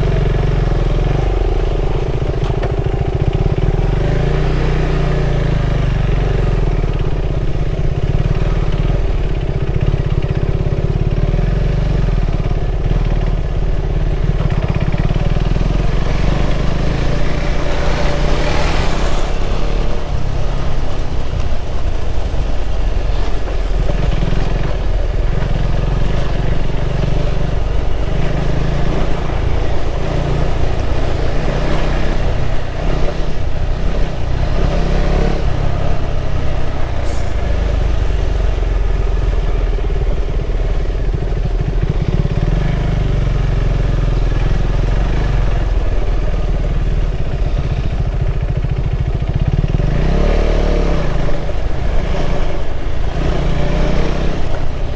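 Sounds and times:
motorcycle engine running: 0:00.0 - 0:54.9
brief hiss: 0:37.0 - 0:37.5.

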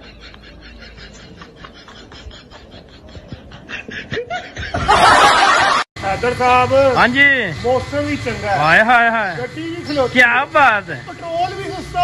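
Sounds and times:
snickering laughter: 0:00.0 - 0:05.8.

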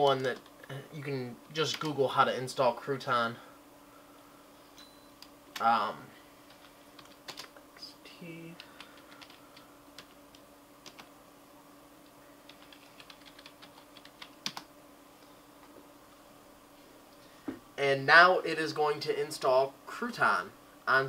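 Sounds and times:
computer keyboard keystrokes: 0:01.7 - 0:01.9, 0:06.5 - 0:07.6, 0:08.7 - 0:09.4, 0:10.0 - 0:11.1, 0:12.5 - 0:14.7.

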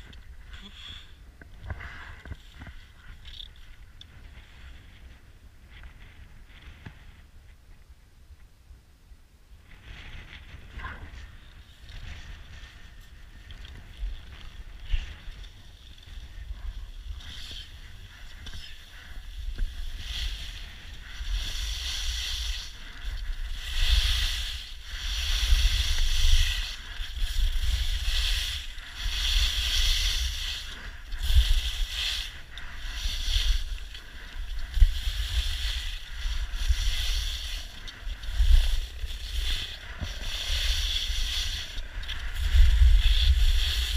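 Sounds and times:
wind rumbling on microphone: 0:00.0 - 0:43.9
skis scraping over snow: 0:09.6 - 0:43.9.

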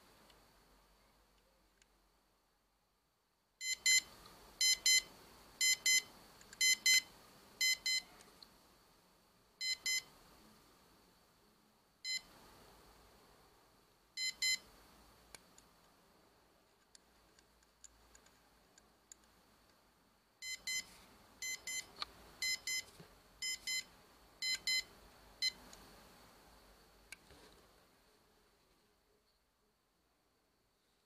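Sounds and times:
watch alarm double beeps: 0:03.6 - 0:08.0, 0:09.6 - 0:10.1, 0:14.2 - 0:14.6, 0:20.4 - 0:25.6.

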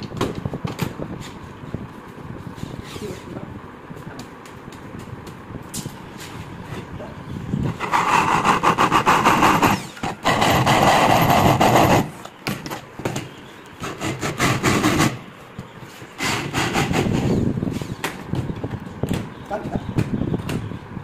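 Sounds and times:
electric drill boring into wood: 0:07.8 - 0:12.1.

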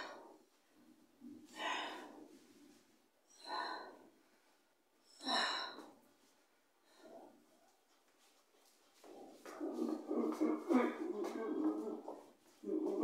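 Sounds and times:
person breathing hard: 0:00.0 - 0:06.1.

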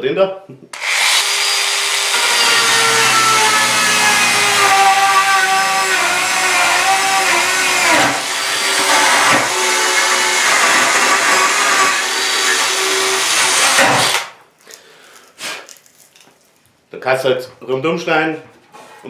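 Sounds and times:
power saw cutting into wood: 0:00.8 - 0:14.4.

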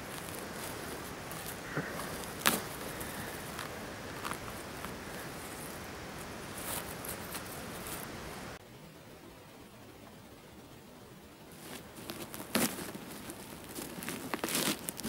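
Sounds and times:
twigs and needles crackling: 0:00.0 - 0:08.6, 0:11.5 - 0:15.0
steady background hiss: 0:00.0 - 0:15.0
mushroom stem snapping: 0:01.4 - 0:05.0.

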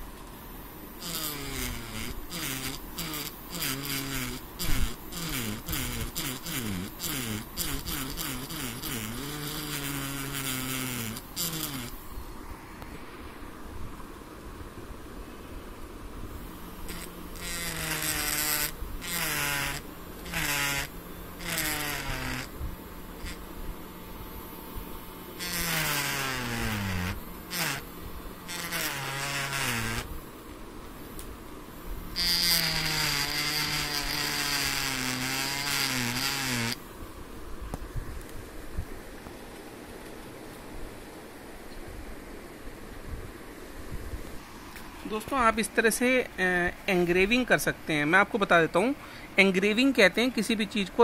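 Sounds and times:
engraver pen buzzing on wood: 0:00.0 - 0:12.2, 0:16.3 - 0:36.9.

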